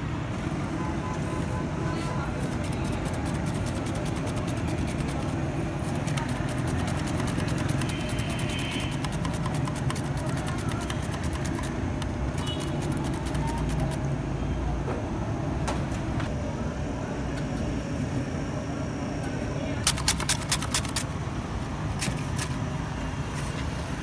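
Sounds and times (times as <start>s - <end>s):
mandoline slicing cucumber: 2.5s - 14.0s.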